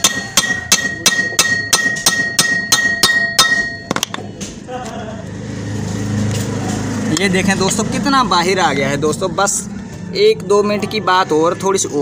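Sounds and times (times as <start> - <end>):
hammer tapping on steel: 0.0 - 4.2.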